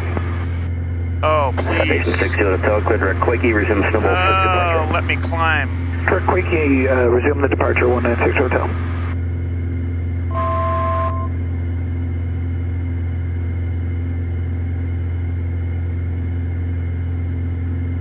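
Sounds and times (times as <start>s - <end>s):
aircraft engine and propeller drone: 0.0s - 18.0s
two-note electronic tone: 10.3s - 11.4s.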